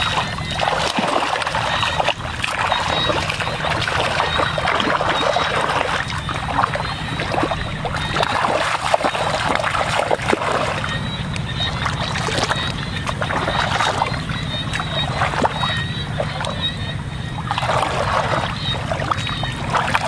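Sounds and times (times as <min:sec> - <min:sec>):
hands splashing in muddy water: 0:00.0 - 0:10.9
steady low hum: 0:00.0 - 0:20.0.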